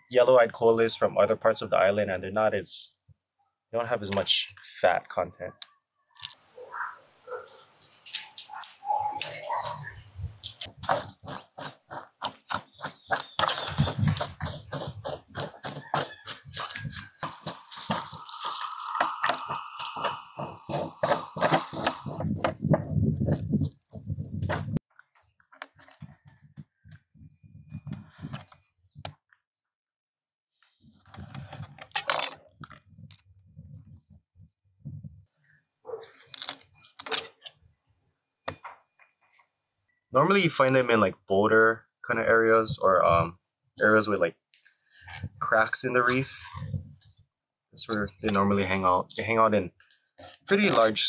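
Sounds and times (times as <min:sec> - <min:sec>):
metal scaler scraping fish scales: 0:10.6 - 0:22.3.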